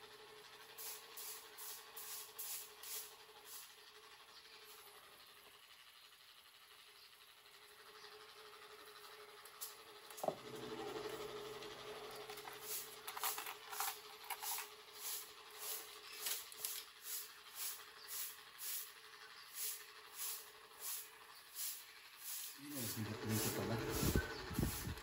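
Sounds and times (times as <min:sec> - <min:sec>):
soft hissing bursts: 0:00.6 - 0:07.3, 0:12.2 - 0:25.0
rummaging small metal pieces: 0:12.3 - 0:14.7.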